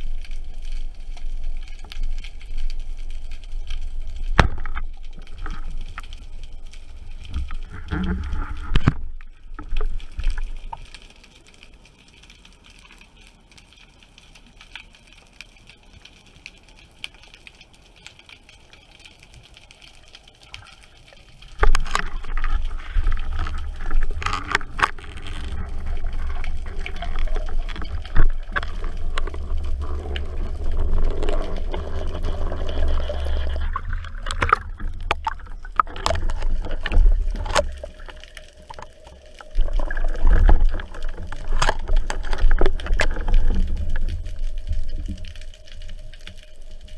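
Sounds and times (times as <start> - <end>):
water rushing over camera: 0.0 - 11.7, 18.4 - 46.9
underwater clicks and knocks: 3.6 - 6.4, 7.1 - 11.1, 21.5 - 46.4.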